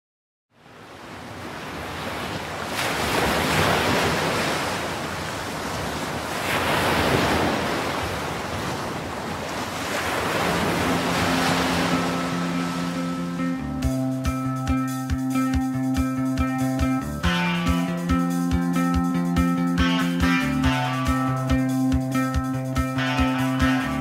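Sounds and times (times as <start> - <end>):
waves washing onto sandy beach: 0.6 - 13.4
low steady musical tone: 10.6 - 24.0.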